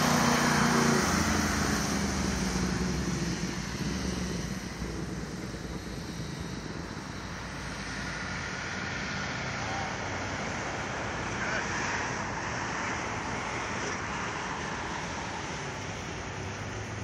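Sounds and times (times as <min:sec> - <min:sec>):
multicopter propeller hum: 0:00.0 - 0:08.8
road traffic rush: 0:00.0 - 0:17.0.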